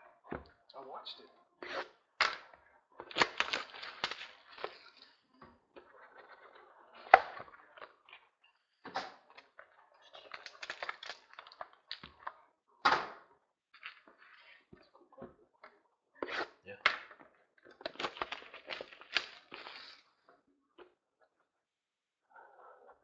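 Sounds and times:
cards clicking and snapping: 0:02.2 - 0:04.8
wrappers crinkling: 0:03.0 - 0:05.0, 0:10.0 - 0:11.6, 0:17.8 - 0:20.1.

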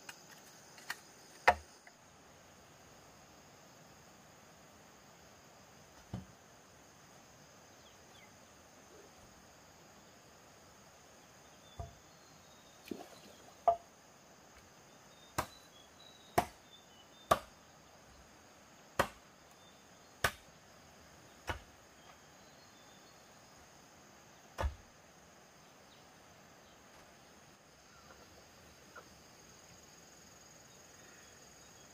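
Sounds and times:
faint insect drone: 0:00.0 - 0:31.9
tool knocking on bamboo: 0:11.8 - 0:12.0, 0:13.6 - 0:13.8.

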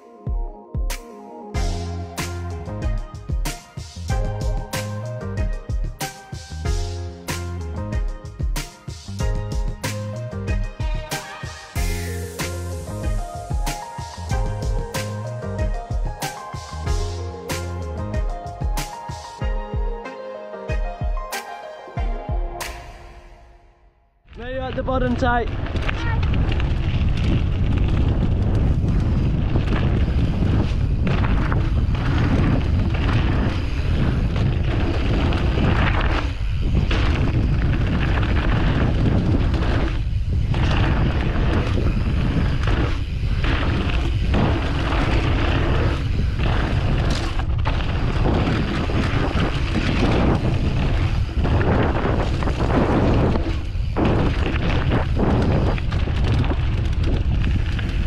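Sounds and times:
bike tyres rolling on dirt: 0:24.3 - 0:58.0
wind buffeting microphone: 0:24.5 - 0:58.0.

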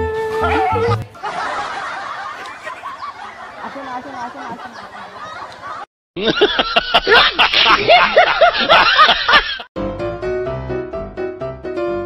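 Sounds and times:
flute-like music note: 0:00.0 - 0:01.0
laugh track: 0:00.7 - 0:09.7.

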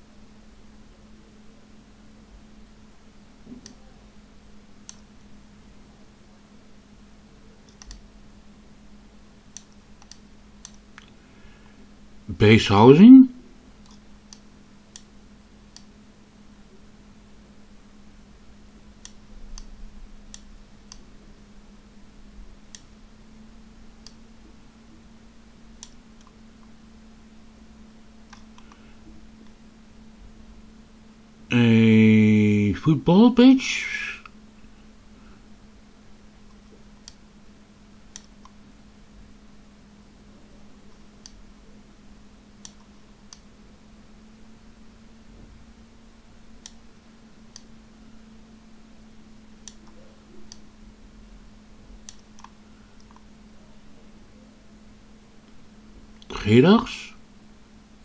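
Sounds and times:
low electrical hum: 0:00.0 - 0:58.0
computer mouse clicks: 0:03.5 - 0:03.8, 0:04.8 - 0:05.1, 0:07.6 - 0:08.1, 0:09.5 - 0:11.2, 0:13.8 - 0:15.1, 0:15.7 - 0:15.9, 0:19.0 - 0:21.1, 0:24.0 - 0:24.2, 0:25.8 - 0:26.8, 0:28.2 - 0:28.8, 0:36.4 - 0:37.2, 0:38.1 - 0:38.6, 0:40.9 - 0:41.4, 0:42.6 - 0:43.5, 0:46.6 - 0:46.8, 0:47.5 - 0:47.7, 0:49.6 - 0:50.7, 0:52.0 - 0:53.3.

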